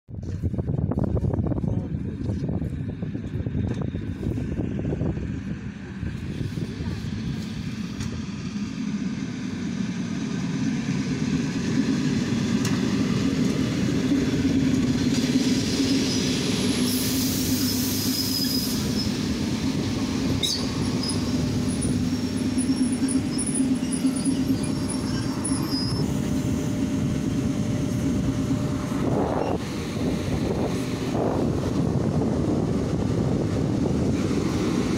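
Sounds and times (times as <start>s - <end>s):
train hum and rumble: 0.1s - 34.9s
wheels squealing on rails: 11.7s - 34.9s.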